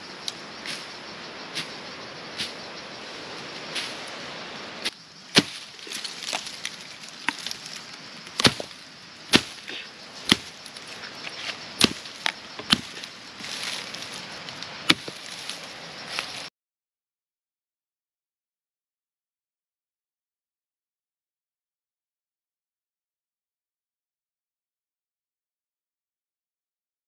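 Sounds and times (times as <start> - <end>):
blade chopping firewood: 4.8 - 14.0, 14.6 - 15.4.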